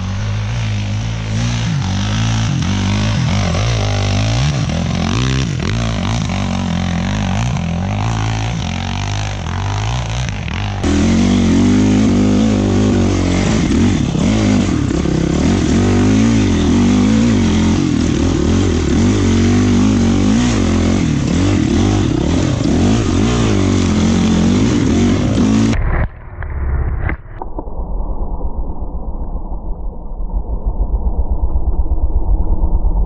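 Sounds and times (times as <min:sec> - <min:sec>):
dirt bike engine: 0:00.0 - 0:25.8
muffled rumble: 0:10.3 - 0:33.0.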